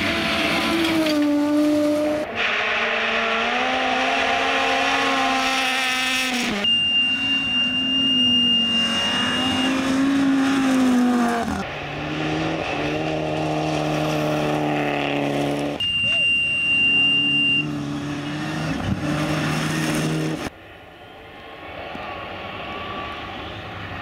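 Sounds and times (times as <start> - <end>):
rally car engines at high revs: 0.0 - 20.5
gravel and tyre noise: 0.0 - 24.0
high whistle: 6.6 - 9.9, 15.8 - 17.7.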